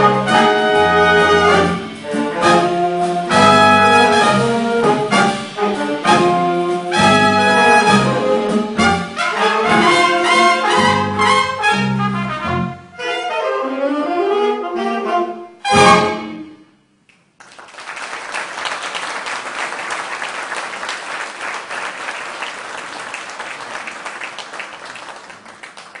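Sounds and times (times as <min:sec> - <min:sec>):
jazz big band playing: 0:00.0 - 0:16.6
audience applause: 0:17.4 - 0:26.0.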